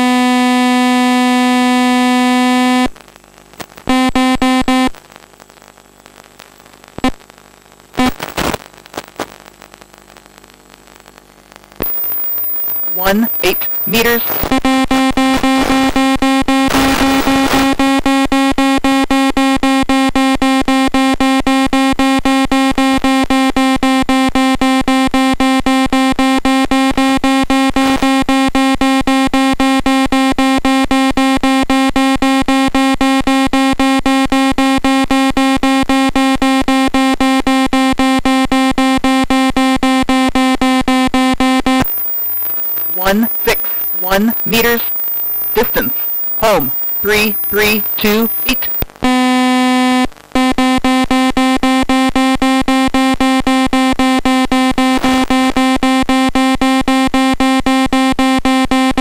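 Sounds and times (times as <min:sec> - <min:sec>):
pulsing buzzy electronic beeping: 0:11.8 - 0:14.5, 0:41.8 - 0:48.8.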